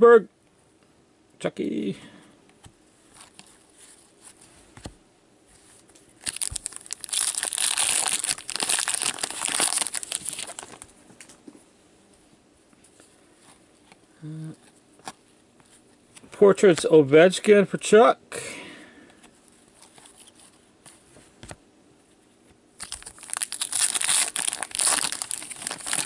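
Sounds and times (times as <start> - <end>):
wrapper tearing and crinkling: 6.2 - 10.9, 22.8 - 26.0.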